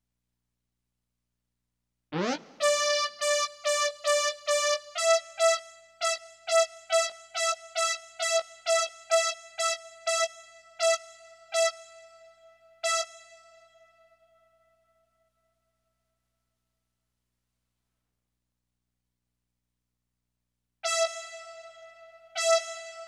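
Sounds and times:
repeated synth note: 0:02.2 - 0:02.9.

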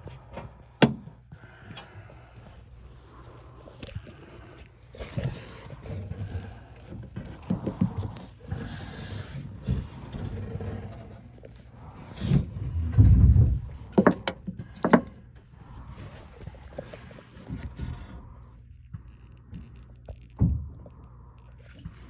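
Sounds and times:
camera scraping against wood and drywall: 0:02.0 - 0:20.4
heavy low thump: 0:12.6 - 0:14.0.

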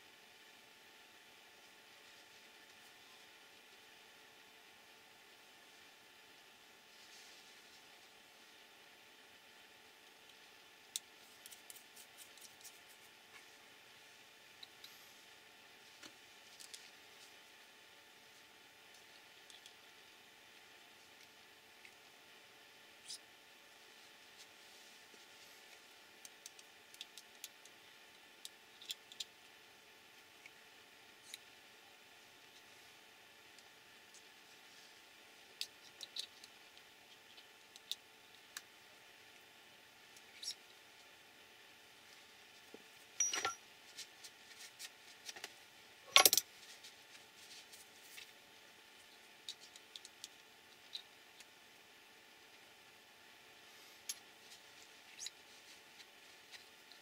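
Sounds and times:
small parts clicking and clinking: 0:43.2 - 0:43.6, 0:46.1 - 0:46.5.

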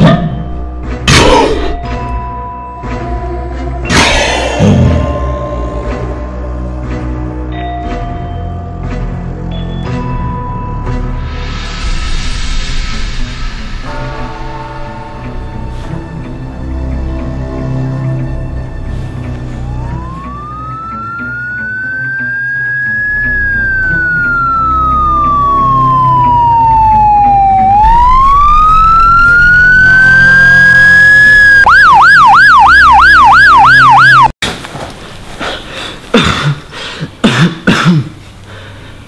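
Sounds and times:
low music drone: 0:00.0 - 0:32.2
siren wailing and yelping: 0:19.6 - 0:34.3.

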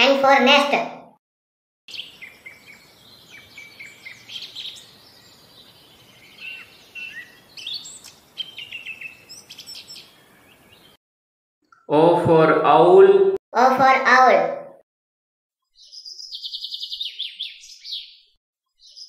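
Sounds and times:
songbirds chirping: 0:01.9 - 0:11.0, 0:15.7 - 0:19.0.

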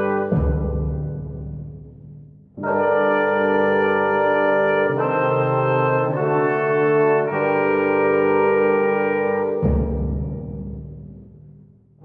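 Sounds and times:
brass section playing chords: 0:00.0 - 0:01.1, 0:02.6 - 0:09.9.

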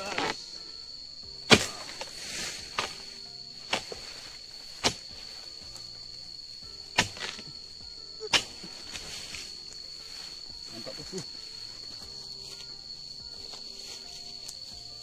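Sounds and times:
steel chisel chopping into palm stalk: 0:01.5 - 0:03.0, 0:04.7 - 0:05.2, 0:06.9 - 0:07.5, 0:08.2 - 0:09.4.

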